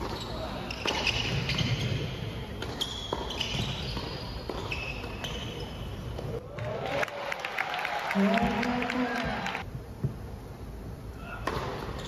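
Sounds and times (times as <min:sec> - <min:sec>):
shoes squeaking on court: 0:00.0 - 0:06.4.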